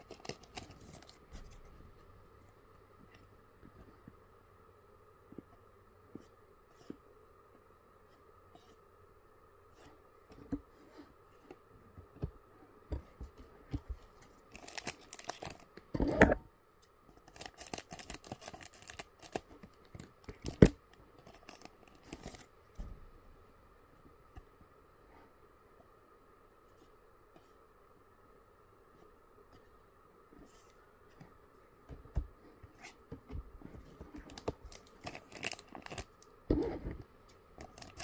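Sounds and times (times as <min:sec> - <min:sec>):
foil wrapper crinkling and tearing: 0:00.0 - 0:01.2, 0:14.4 - 0:15.7, 0:17.2 - 0:19.5, 0:20.2 - 0:22.5, 0:34.3 - 0:36.3, 0:37.6 - 0:38.0.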